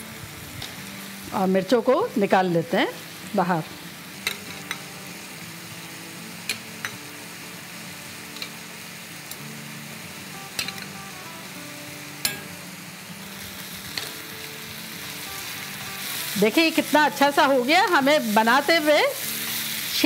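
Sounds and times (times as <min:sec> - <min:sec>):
chicken sizzling in oil: 0:00.0 - 0:20.0
metal spoon clinking on steel: 0:12.2 - 0:12.5.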